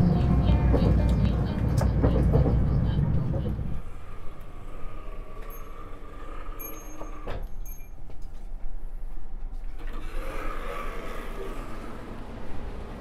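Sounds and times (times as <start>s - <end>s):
train carriage low rumble: 0.0s - 13.0s
sliding door opening: 9.7s - 13.0s.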